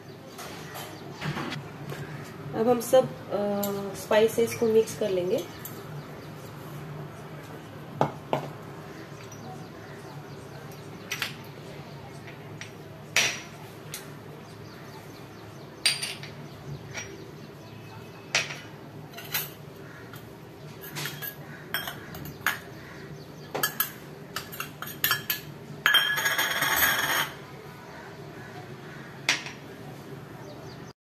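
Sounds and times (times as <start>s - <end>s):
steel spoons clinking on bowls: 18.3s - 19.6s, 20.8s - 22.7s, 23.6s - 27.4s.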